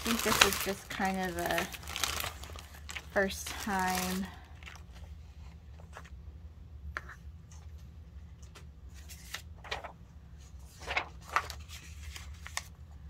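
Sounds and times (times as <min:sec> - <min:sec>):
paper rustling: 0:00.0 - 0:06.2, 0:08.9 - 0:12.8.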